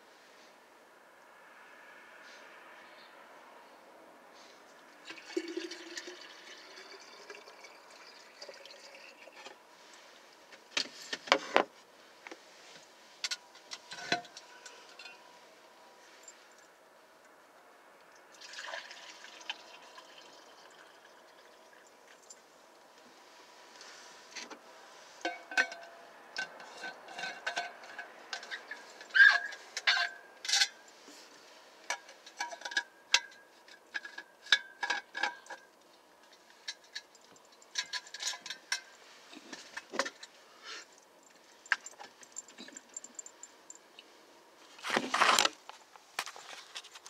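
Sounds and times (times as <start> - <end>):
camera handling rustle and bump: 44.8 - 47.0.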